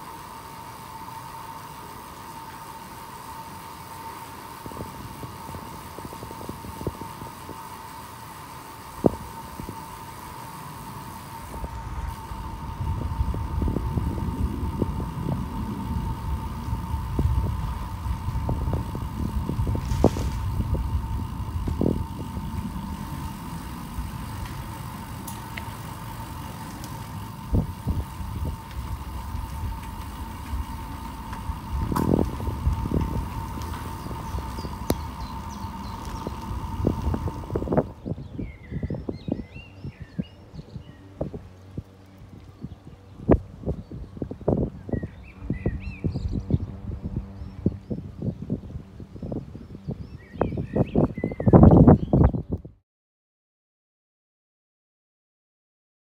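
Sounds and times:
low hiss: 0.0 - 38.1
steady high hum: 0.0 - 50.0
wind buffeting microphone: 4.5 - 52.8.

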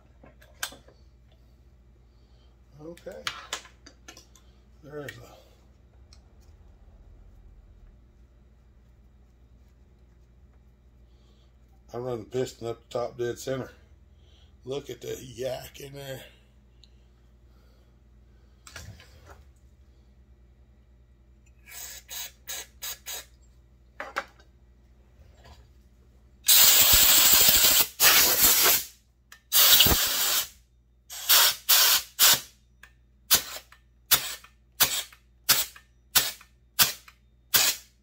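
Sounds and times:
air blow gun hissing: 26.5 - 28.9, 29.5 - 32.5, 33.3 - 37.9.

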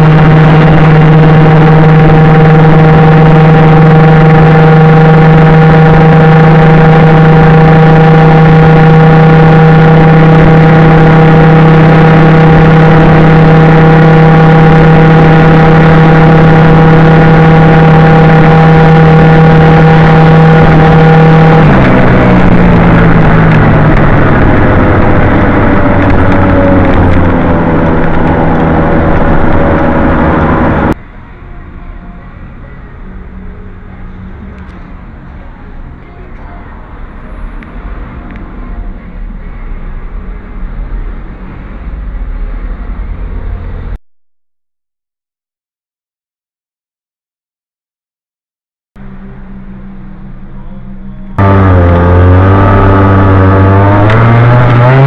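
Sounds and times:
scooter engine droning: 0.0 - 31.0, 49.0 - 55.0.

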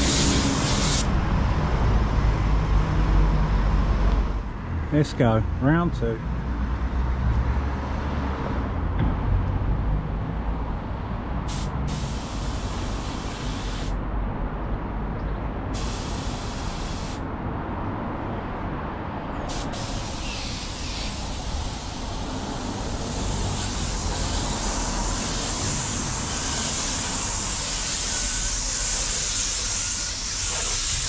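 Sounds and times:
paint spray gun hissing: 0.0 - 1.1, 11.5 - 14.0, 15.8 - 17.2, 19.5 - 31.0.

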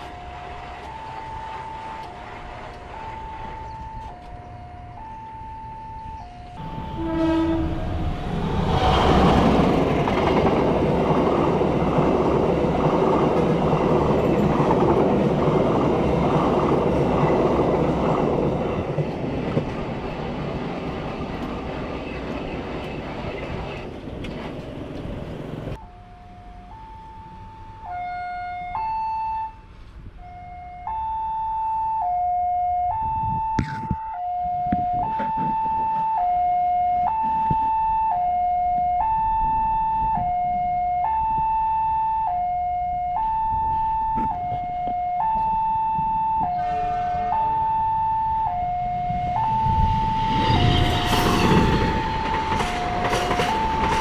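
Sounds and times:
train rumble and clatter: 0.0 - 4.6, 6.5 - 25.8, 43.4 - 54.0
crossing warning alarm two-tone: 0.0 - 9.0, 25.7 - 54.0.

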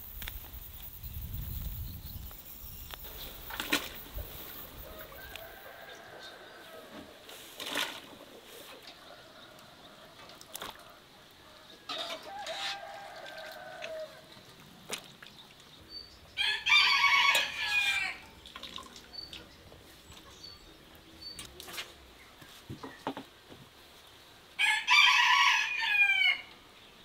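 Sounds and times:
rooster crowing: 4.8 - 7.0, 12.0 - 14.3, 16.4 - 18.3, 24.6 - 26.5.

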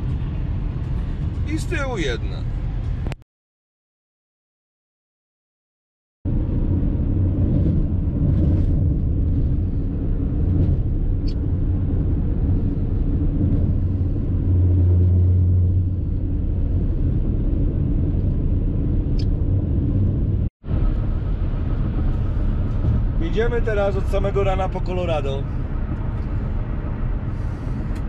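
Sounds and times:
road and engine rumble in car: 0.0 - 3.2, 6.3 - 28.0
low hum: 6.3 - 24.8, 25.4 - 28.0.

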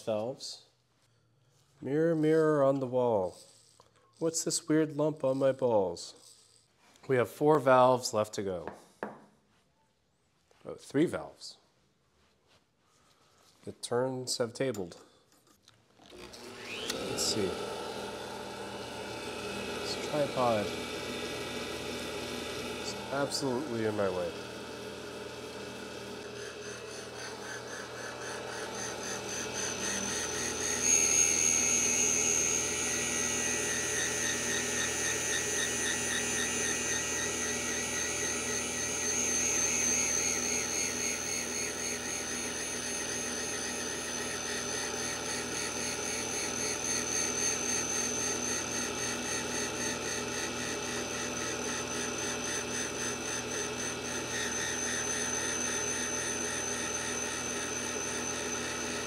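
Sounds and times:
valve grinder whining: 6.2 - 6.7, 16.0 - 59.0.

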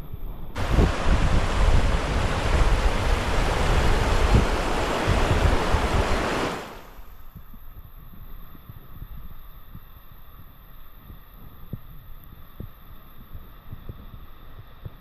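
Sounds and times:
river rushing over rocks: 0.6 - 7.0
wind buffeting microphone: 0.6 - 7.1.

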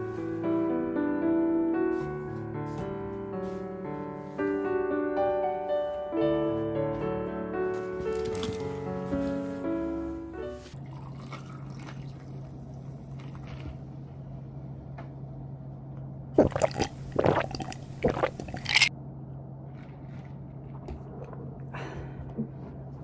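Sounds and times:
drink fizzing over ice: 10.9 - 12.3, 16.4 - 18.9
loud drinking sounds: 16.4 - 18.9.

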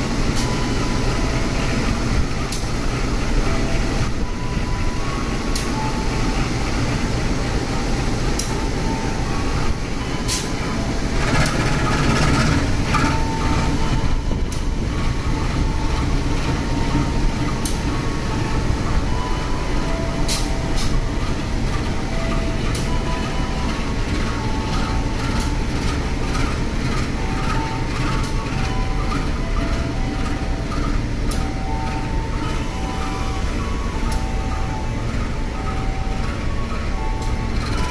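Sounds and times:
train coaches rumbling past: 0.0 - 37.9
wheels clicking on track: 0.0 - 37.9.

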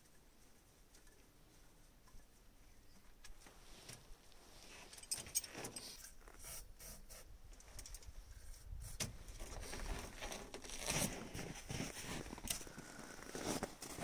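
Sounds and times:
faint metallic clinks: 4.6 - 6.2.

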